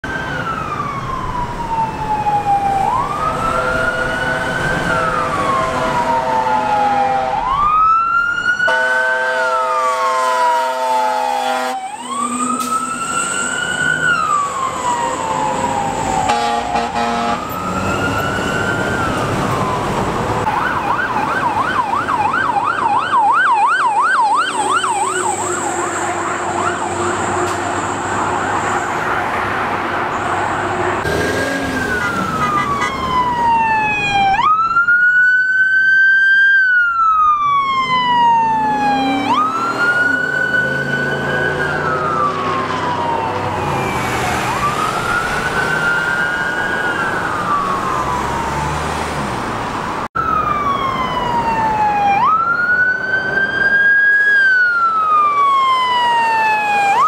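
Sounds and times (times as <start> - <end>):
fire engine siren wailing: 0.0 - 57.0
fire engine horn blast: 3.2 - 7.7, 8.6 - 13.6, 16.1 - 18.1, 24.6 - 28.9, 31.0 - 33.2.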